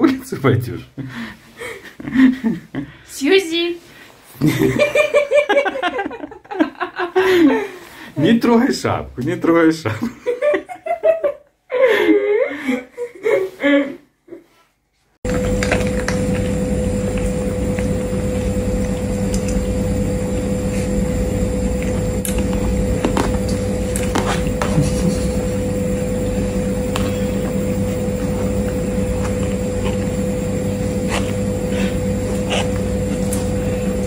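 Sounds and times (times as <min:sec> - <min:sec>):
steady hum with mid-pitched tone: 0:15.2 - 0:34.0.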